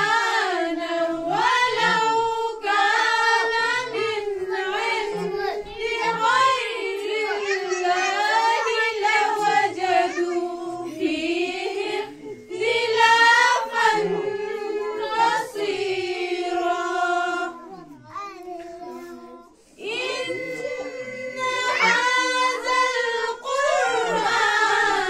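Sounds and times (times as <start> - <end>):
child singing: 0.0 - 25.0.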